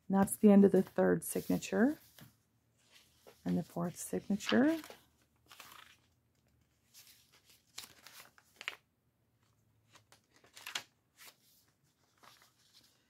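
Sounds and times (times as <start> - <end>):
paper pages rustling: 0.7 - 13.0.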